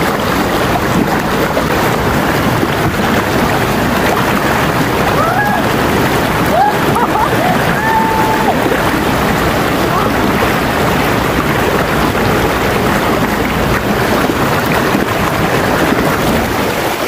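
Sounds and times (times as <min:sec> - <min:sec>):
river rushing over rocks: 0:00.0 - 0:17.0.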